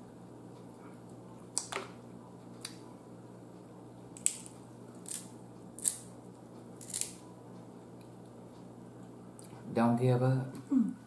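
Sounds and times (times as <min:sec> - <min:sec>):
crab shells cracking: 0:04.2 - 0:06.1, 0:06.8 - 0:07.2.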